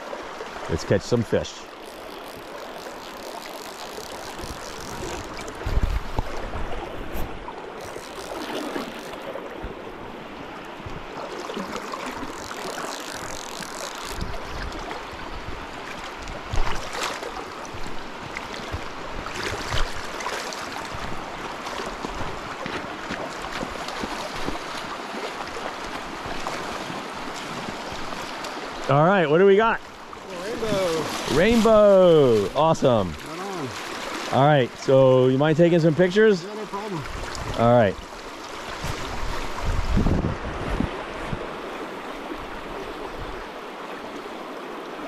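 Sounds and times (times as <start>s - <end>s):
creek water rushing over gravel: 0.0s - 45.0s
wind buffeting microphone: 5.0s - 7.5s, 38.8s - 41.6s.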